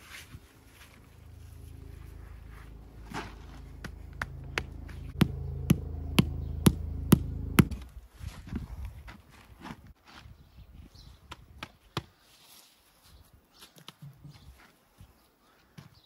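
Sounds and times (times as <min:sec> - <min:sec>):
low machine hum: 0:00.0 - 0:08.0.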